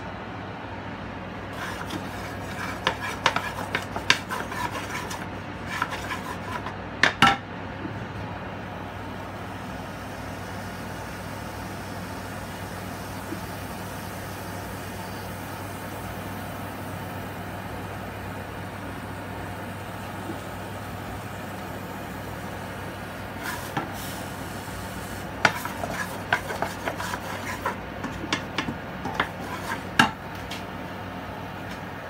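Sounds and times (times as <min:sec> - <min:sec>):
steady low hum: 0:00.0 - 0:32.0
wooden spatula scraping a wok: 0:01.6 - 0:06.8, 0:23.4 - 0:24.2, 0:25.4 - 0:30.6.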